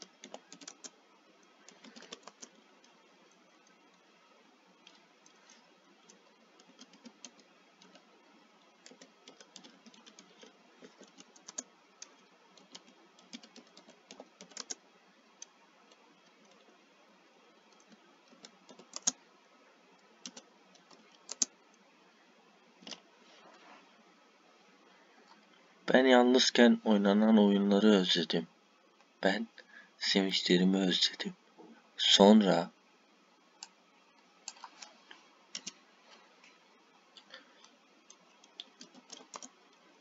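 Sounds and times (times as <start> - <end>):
computer keyboard typing: 0.0 - 1.0, 1.7 - 3.8, 4.8 - 8.1, 8.8 - 14.8, 17.7 - 19.2, 20.2 - 21.6, 34.4 - 35.8, 38.1 - 39.6.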